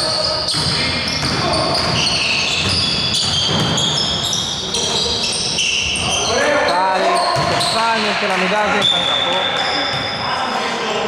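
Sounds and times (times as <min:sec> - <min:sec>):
sneakers squeaking: 0:00.0 - 0:11.0
basketball bouncing: 0:00.5 - 0:04.4, 0:07.2 - 0:07.9.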